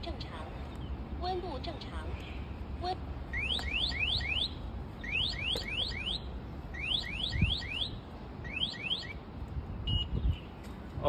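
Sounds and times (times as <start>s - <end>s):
electronic alarm chirping: 3.3s - 9.2s, 9.8s - 10.2s.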